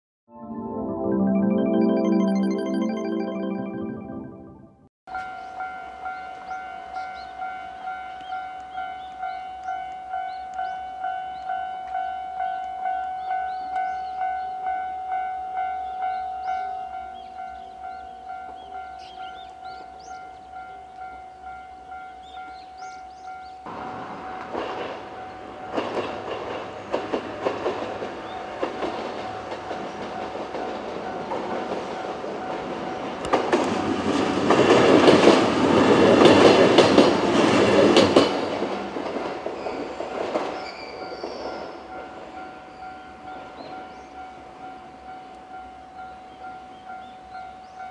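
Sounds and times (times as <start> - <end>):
electric train passing: 5.2 - 47.9
wheels clacking over rail joints: 23.7 - 41.7.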